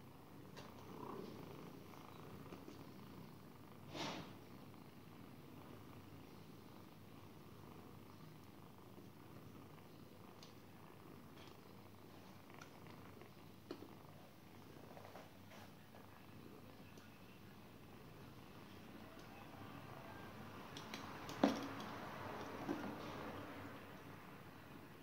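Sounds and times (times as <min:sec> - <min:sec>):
cat purring: 0:00.0 - 0:25.0
soft ticks: 0:10.4 - 0:10.6.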